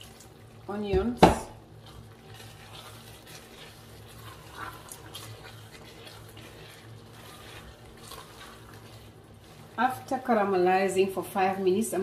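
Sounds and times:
sauce bubbling: 0:00.0 - 0:10.7
steady low hum: 0:00.0 - 0:12.0
spatula scraping in pot: 0:01.6 - 0:10.6.

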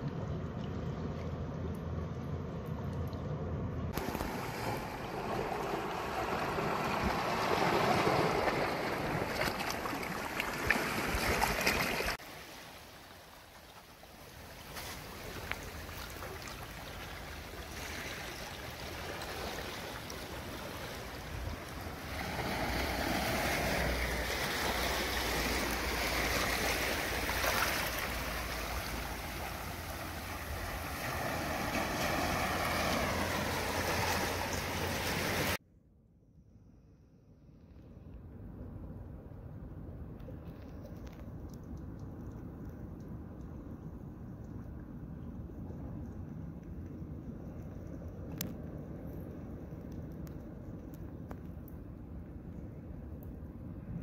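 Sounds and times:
seawater washing over rocks: 0:04.0 - 0:35.6.

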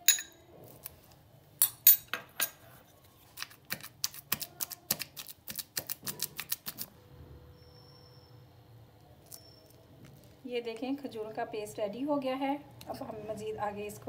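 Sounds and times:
metal spoon clinking on glass: 0:00.0 - 0:00.4, 0:01.6 - 0:02.6.

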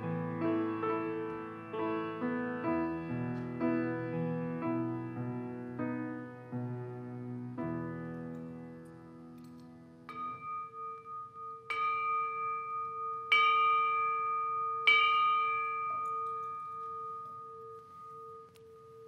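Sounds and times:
metal bell struck with mallet: 0:10.1 - 0:19.0.

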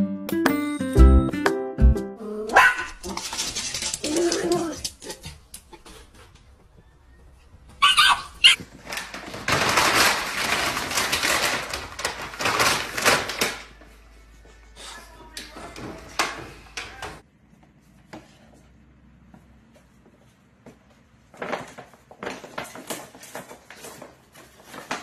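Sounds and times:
dog barking: 0:02.5 - 0:03.0, 0:07.8 - 0:08.6
plastic bag crinkling: 0:08.6 - 0:13.8.

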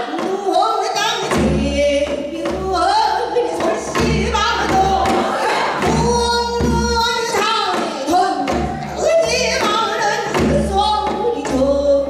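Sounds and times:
woman singing with vibrato: 0:00.0 - 0:12.0
sharp percussion strikes: 0:01.2 - 0:12.0
low accompaniment: 0:01.4 - 0:12.0.

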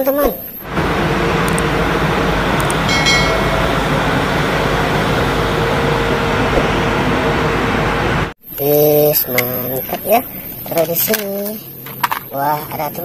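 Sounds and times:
faint hum: 0:00.0 - 0:13.0
street sweeper truck running: 0:00.6 - 0:11.2.

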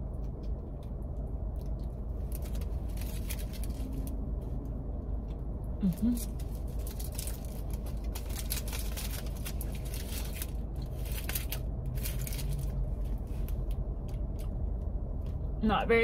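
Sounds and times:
chewing with wet mouth smacks: 0:00.0 - 0:02.4
steady low hum: 0:00.0 - 0:16.0
foil wrapper crinkling: 0:02.2 - 0:04.1, 0:06.2 - 0:12.8.

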